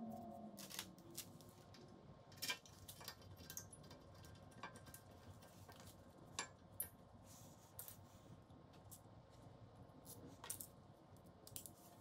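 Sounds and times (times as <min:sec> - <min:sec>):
light clicks and taps of tools: 0:01.6 - 0:07.0.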